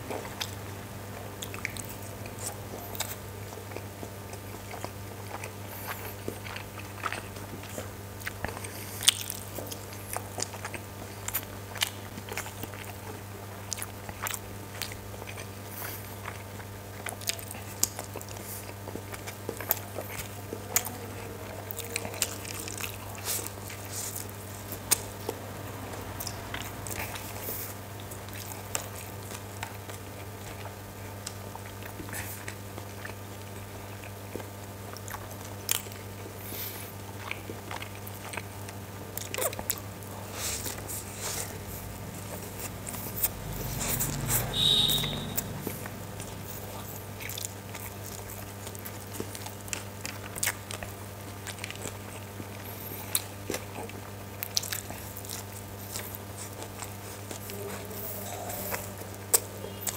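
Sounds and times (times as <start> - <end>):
man chewing and biting: 0.0 - 59.9.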